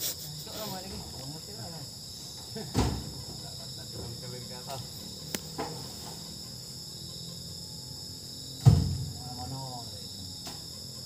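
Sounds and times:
crickets and insects droning: 0.0 - 11.0
heavy thump into truck bed: 2.6 - 3.4, 8.6 - 9.2.

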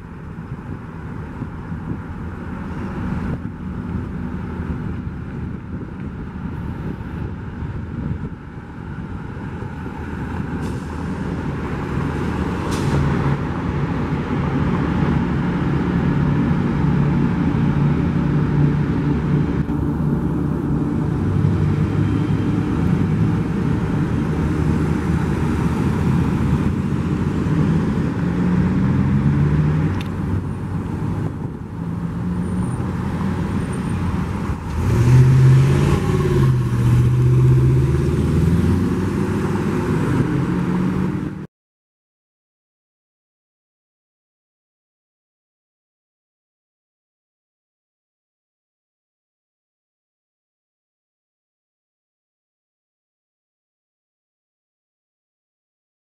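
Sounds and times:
car and truck engines: 0.0 - 41.5
vehicle engine rising in pitch: 7.7 - 41.5.

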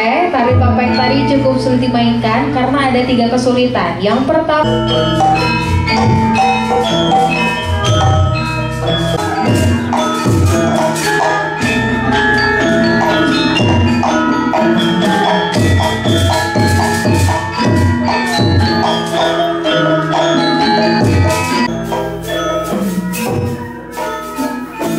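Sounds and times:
metallophones ringing melody: 0.0 - 24.9.

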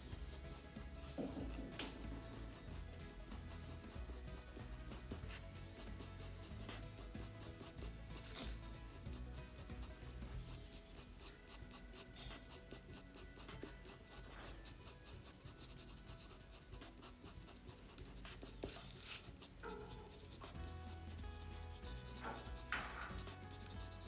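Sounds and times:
pencil scratching on paper: 0.0 - 24.0.

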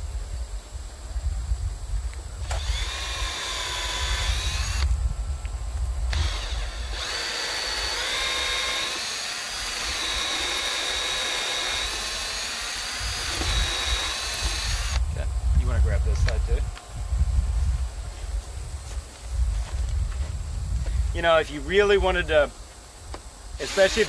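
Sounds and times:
cordless drill whining into wood: 2.4 - 4.9, 6.1 - 15.1, 23.6 - 24.0.

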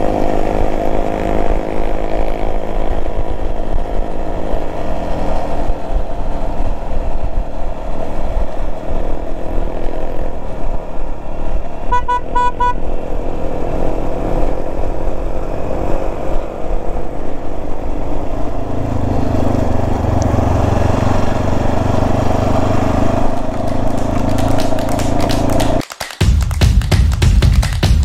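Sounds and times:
motorcycle engine running: 0.0 - 25.8
wind noise on microphone: 1.5 - 12.2.

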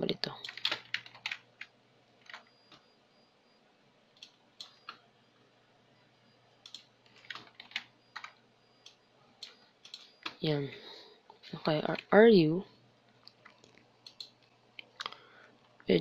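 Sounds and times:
computer keyboard and mouse clicks: 0.4 - 2.8, 4.2 - 5.0, 6.6 - 10.4, 13.2 - 15.8.

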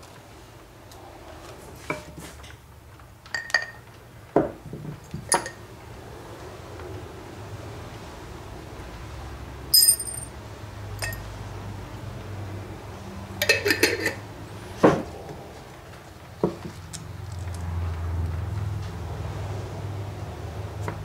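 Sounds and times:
metal parts clinking against glass jar: 9.7 - 10.3, 11.0 - 11.2.

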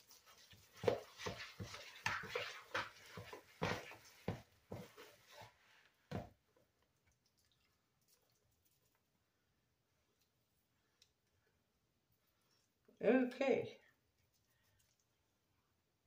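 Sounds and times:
whisk scraping plastic bowl: 0.0 - 5.6.

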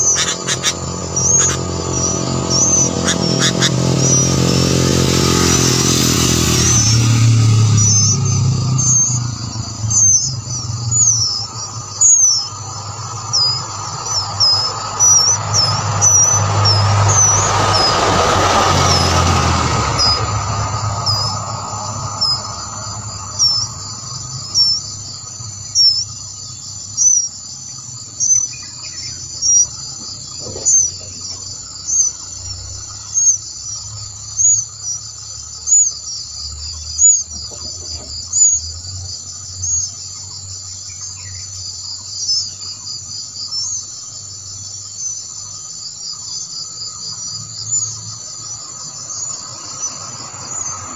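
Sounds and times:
rush of noise: 0.0 - 26.1
high insect trilling: 0.0 - 50.9.

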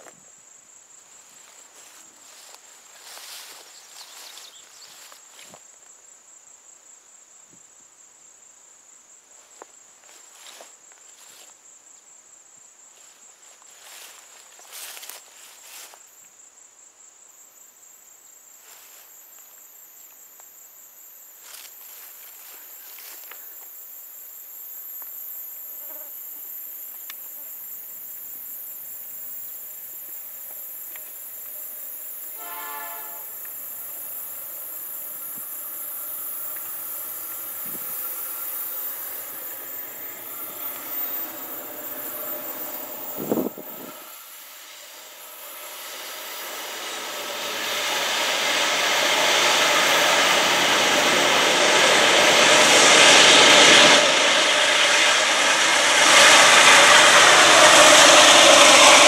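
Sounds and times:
insects chirring: 0.0 - 51.9
locomotive rumble: 30.7 - 59.0
distant locomotive horn: 31.7 - 59.0.

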